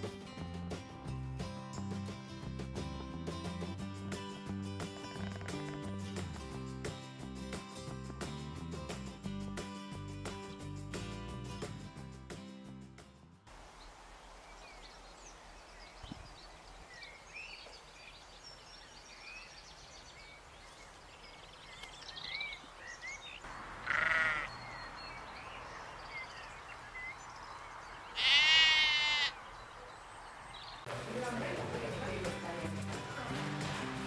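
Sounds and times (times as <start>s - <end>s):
sheep bleating: 23.8s - 24.6s, 28.2s - 29.4s.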